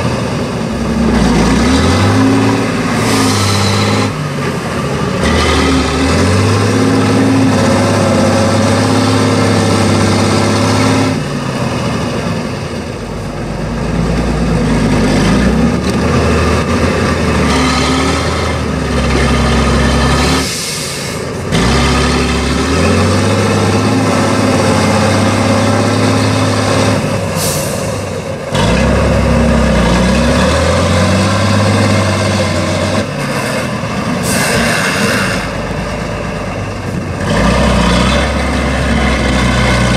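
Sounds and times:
truck diesel engine under load: 0:00.0 - 0:39.9
short hisses: 0:20.4 - 0:21.3.

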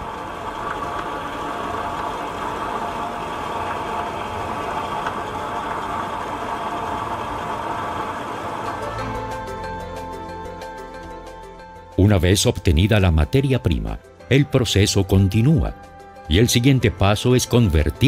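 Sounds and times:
clay mill churning: 0:00.0 - 0:09.3.

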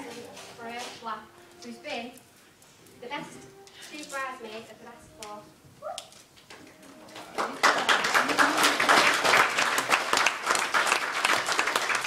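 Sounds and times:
audience applauding: 0:07.1 - 0:12.0.

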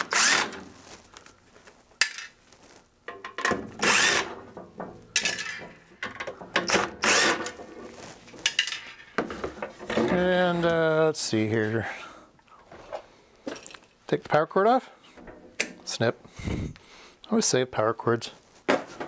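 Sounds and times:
impact driver rattling: 0:03.2 - 0:07.7.

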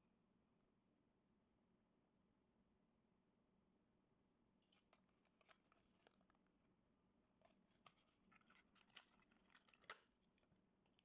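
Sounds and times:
plastic blister pack crinkling: 0:04.6 - 0:06.5, 0:07.4 - 0:11.0.

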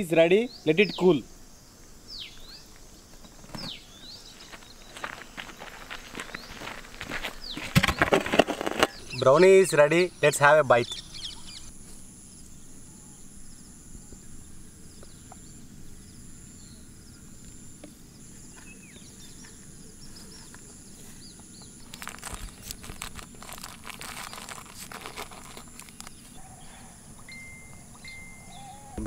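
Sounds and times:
bird chirps: 0:02.1 - 0:05.2, 0:08.9 - 0:11.7, 0:26.0 - 0:29.0
crackling clicks: 0:21.8 - 0:26.2
steady high-pitched tone: 0:27.1 - 0:29.0.

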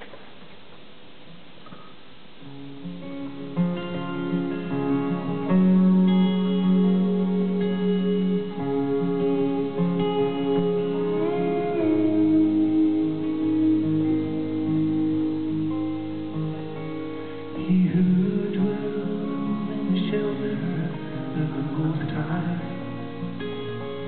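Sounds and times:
band playing slow guitar music: 0:02.4 - 0:24.0
guitar note sliding up: 0:03.1 - 0:17.6.

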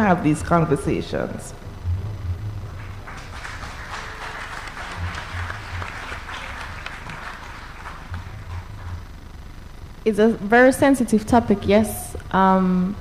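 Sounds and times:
audience applauding: 0:02.7 - 0:09.1.

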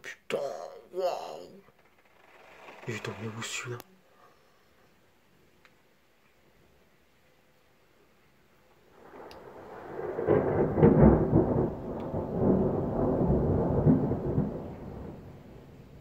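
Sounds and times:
thunder rumbling and clapping: 0:09.0 - 0:16.0.

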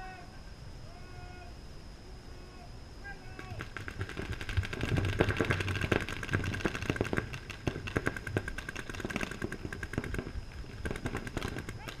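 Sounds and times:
paintball markers firing: 0:03.4 - 0:12.0.

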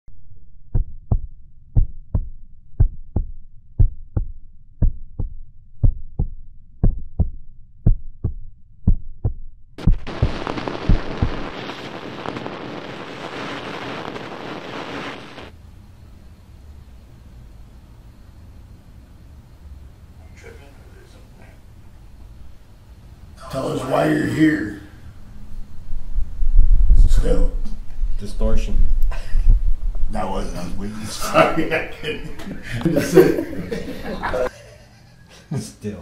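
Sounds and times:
heartbeat double thump: 0:00.6 - 0:11.7
tv static hiss: 0:09.8 - 0:15.5, 0:30.1 - 0:34.5.

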